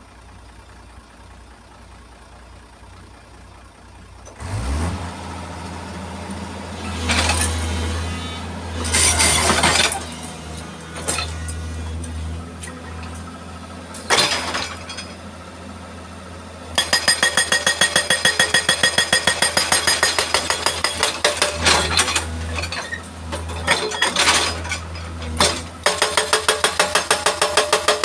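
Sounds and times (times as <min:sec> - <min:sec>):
diesel engine idling: 0:00.0 - 0:16.8
hydraulic breaker hammering rock: 0:16.8 - 0:22.3, 0:25.3 - 0:28.0.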